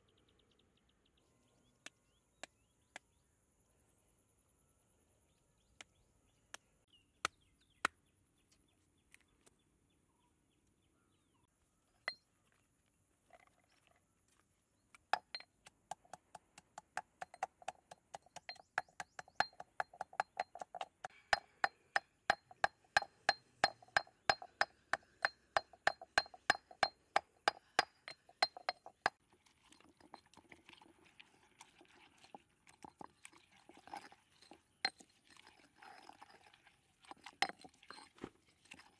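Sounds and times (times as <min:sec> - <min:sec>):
stone pestle pounding in mortar: 0:15.2 - 0:29.2
pestle grinding wet paste: 0:15.2 - 0:38.9.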